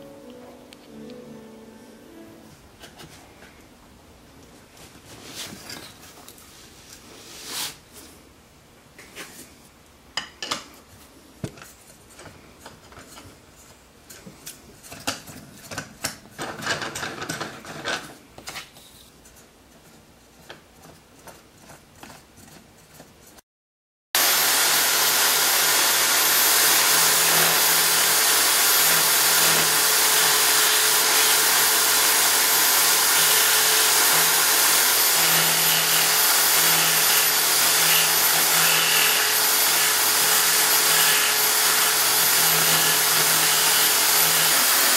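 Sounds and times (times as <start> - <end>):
chisel cutting spinning wood: 24.2 - 44.9
power drill running: 24.2 - 44.9.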